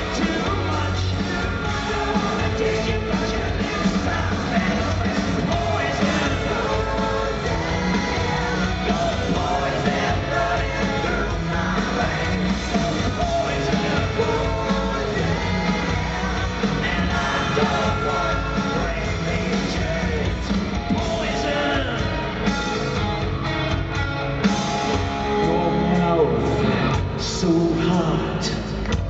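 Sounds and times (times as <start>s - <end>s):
person singing: 0.0s - 22.4s
live rock band playing: 0.0s - 29.0s.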